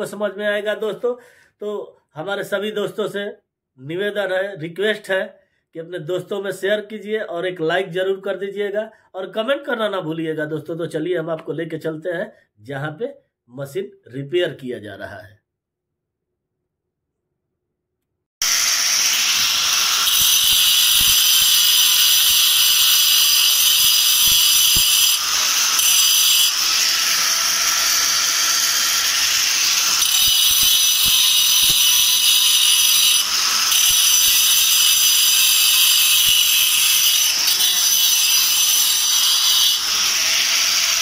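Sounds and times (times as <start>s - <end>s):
angle grinder cutting stone: 18.4s - 41.0s.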